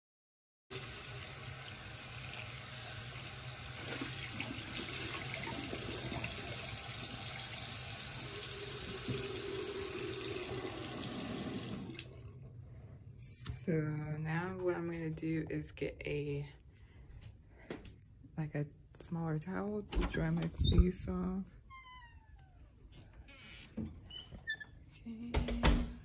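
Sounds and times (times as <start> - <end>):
water running from sink tap: 0.7 - 12.4.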